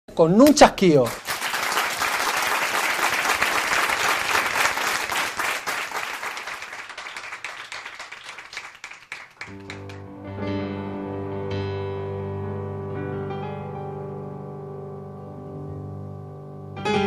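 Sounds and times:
audience applause: 0:01.0 - 0:10.1
electronic keyboard chords: 0:09.5 - 0:17.0.

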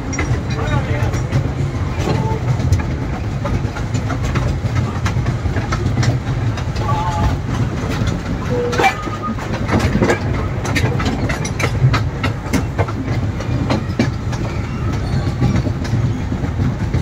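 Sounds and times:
toy train rumbling: 0:00.0 - 0:17.0
wheels clicking and clanking: 0:00.0 - 0:17.0.

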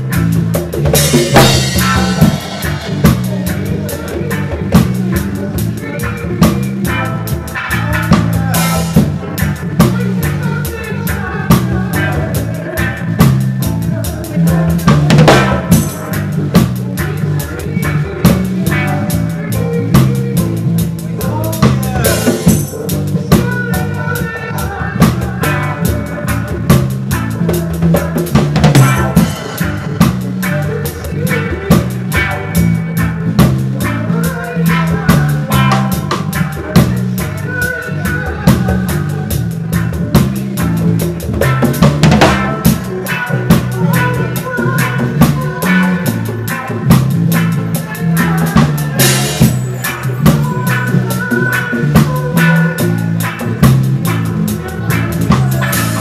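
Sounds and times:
drum kit hits: 0:00.0 - 0:10.9, 0:14.5 - 0:17.2, 0:25.0 - 0:34.1, 0:38.4 - 0:56.0
repeating low bass line: 0:00.0 - 0:56.0.

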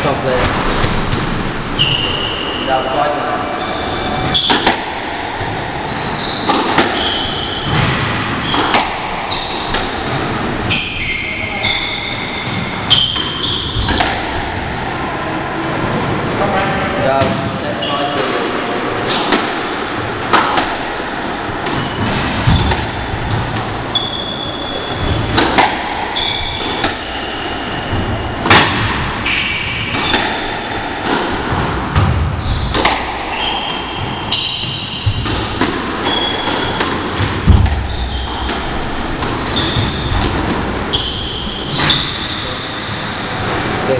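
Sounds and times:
squash ball hitting rackets and walls: 0:00.0 - 0:43.9
shoes squeaking on wooden floor: 0:01.7 - 0:02.6, 0:03.5 - 0:04.7, 0:05.8 - 0:07.8, 0:08.4 - 0:09.9, 0:10.6 - 0:14.0, 0:21.7 - 0:25.4, 0:26.1 - 0:28.4, 0:36.0 - 0:43.9.

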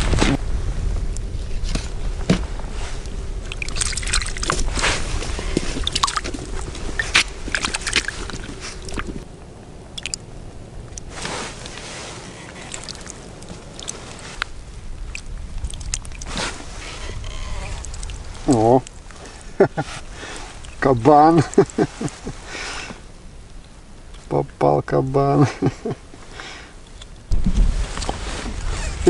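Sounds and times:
low rumble: 0:00.0 - 0:24.6, 0:25.6 - 0:29.0
slushy water sloshing: 0:02.8 - 0:09.3, 0:10.9 - 0:23.0
rustling and clicks: 0:10.8 - 0:20.8.

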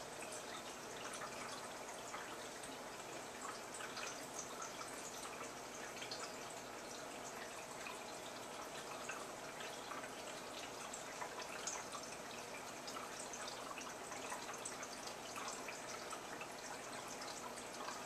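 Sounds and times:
aquarium water trickling and dripping: 0:00.0 - 0:18.0.

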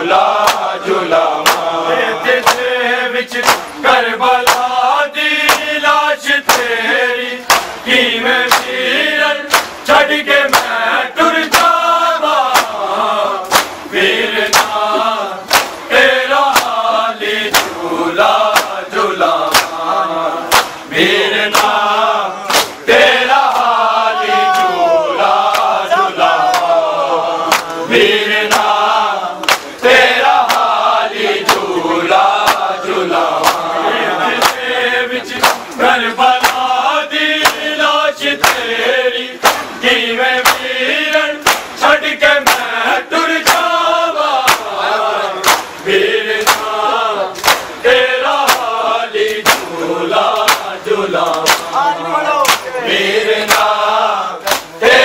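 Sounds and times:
men chanting a lament: 0:00.0 - 0:55.0
hands slapping chests: 0:00.3 - 0:00.7, 0:01.3 - 0:01.7, 0:02.4 - 0:02.7, 0:03.4 - 0:03.8, 0:04.4 - 0:04.8, 0:05.4 - 0:05.7, 0:06.4 - 0:06.7, 0:07.4 - 0:07.8, 0:08.4 - 0:08.8, 0:09.5 - 0:09.8, 0:10.5 - 0:10.8, 0:11.4 - 0:11.8, 0:12.4 - 0:12.8, 0:13.4 - 0:15.9, 0:16.5 - 0:16.8, 0:17.5 - 0:17.8, 0:18.4 - 0:18.8, 0:19.4 - 0:19.9, 0:20.5 - 0:20.9, 0:21.5 - 0:22.8, 0:23.4 - 0:23.8, 0:25.4 - 0:25.8, 0:26.4 - 0:26.8, 0:27.4 - 0:27.8, 0:28.5 - 0:34.7, 0:35.3 - 0:36.7, 0:37.4 - 0:37.7, 0:38.4 - 0:38.7, 0:39.4 - 0:39.8, 0:40.4 - 0:41.8, 0:42.4 - 0:42.7, 0:43.4 - 0:43.8, 0:44.4 - 0:44.8, 0:45.4 - 0:45.8, 0:46.4 - 0:46.8, 0:47.4 - 0:47.8, 0:48.4 - 0:51.8, 0:52.4 - 0:52.7, 0:53.4 - 0:53.8, 0:54.4 - 0:54.8.

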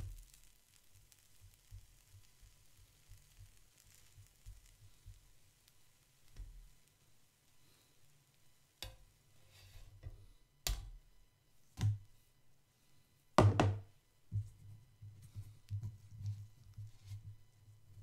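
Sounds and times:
spatula knocking on griddle: 0:13.4 - 0:13.8.

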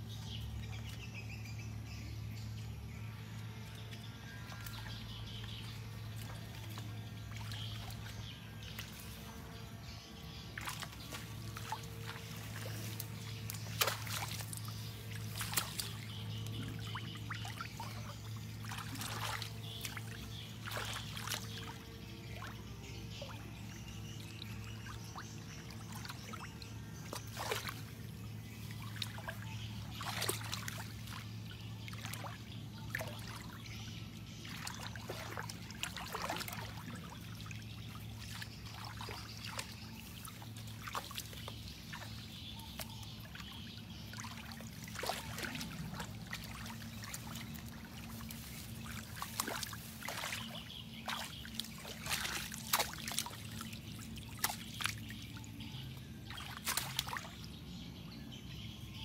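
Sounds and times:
hands splashing in shallow water: 0:10.6 - 0:21.8, 0:27.0 - 0:27.9, 0:28.7 - 0:33.6, 0:34.4 - 0:43.5, 0:44.1 - 0:55.3, 0:56.3 - 0:57.5.

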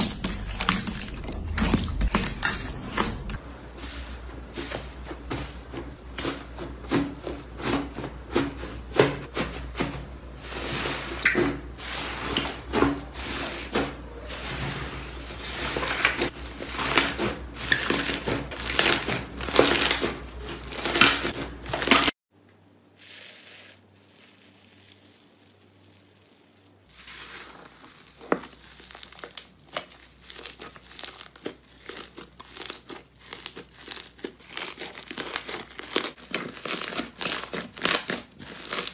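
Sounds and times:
slime crackling and popping: 0:16.7 - 0:20.0, 0:23.1 - 0:38.9.

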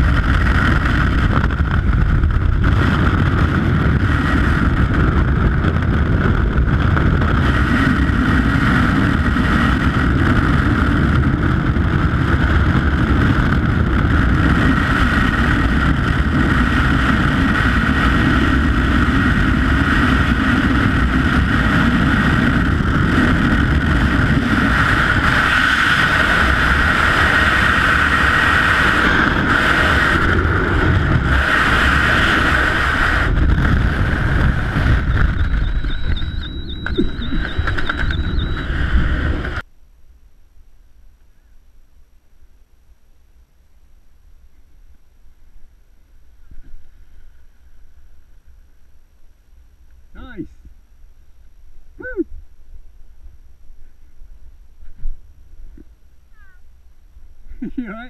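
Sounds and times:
wind buffeting microphone: 0:00.0 - 0:39.7.

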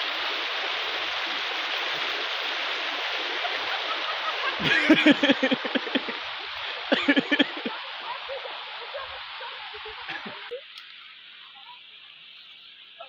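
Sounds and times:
steady rushing noise: 0:04.0 - 0:10.3.

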